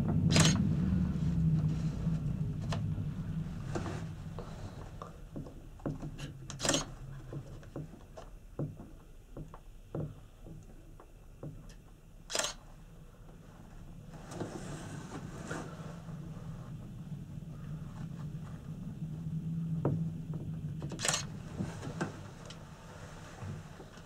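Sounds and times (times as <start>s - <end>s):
cabin creaking and clicking: 0.0s - 0.7s, 4.9s - 12.7s, 19.8s - 22.7s
low hum: 0.0s - 24.0s.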